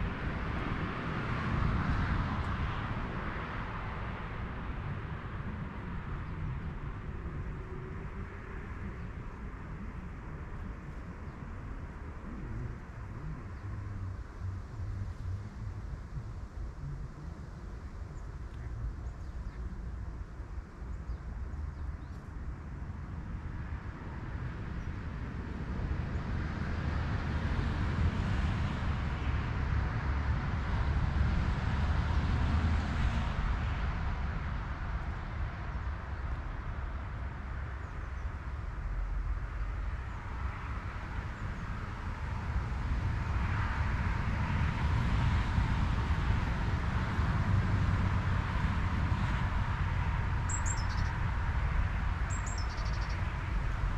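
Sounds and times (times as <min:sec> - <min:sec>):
distant road traffic: 0:00.0 - 0:53.9.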